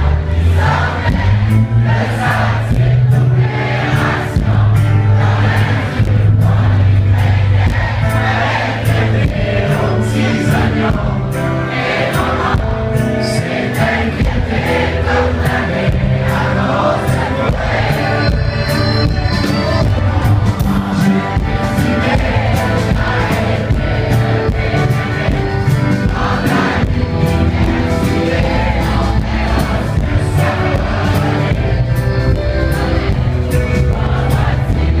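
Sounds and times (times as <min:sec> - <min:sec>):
drums: 0:00.0 - 0:35.0
electric guitar: 0:00.0 - 0:35.0
heavy bass line: 0:00.0 - 0:35.0
man singing: 0:08.9 - 0:35.0.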